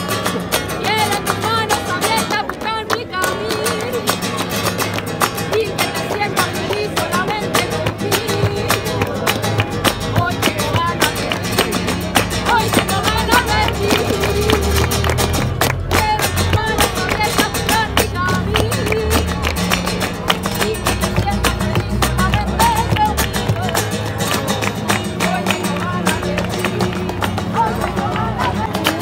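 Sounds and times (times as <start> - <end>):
acoustic guitar strummed and plucked: 0.0 - 29.0
hand clapping: 0.0 - 29.0.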